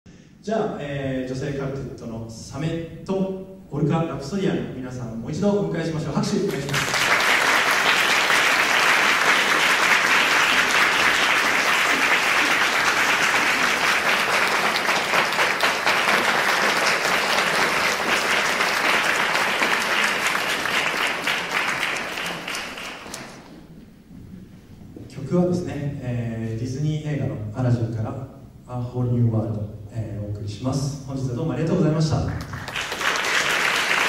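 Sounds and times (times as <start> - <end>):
audience applause: 6.5 - 23.6, 32.4 - 34.0.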